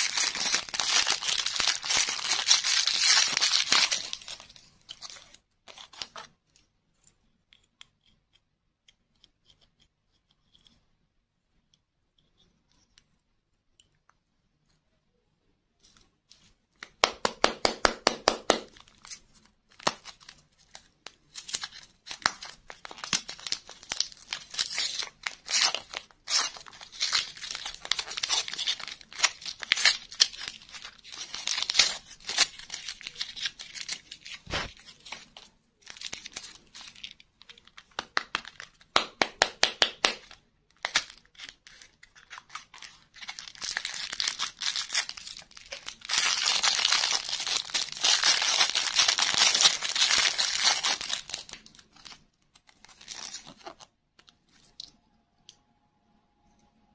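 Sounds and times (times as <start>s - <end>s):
candy wrapper crinkling: 0.0s - 6.3s, 18.3s - 55.0s.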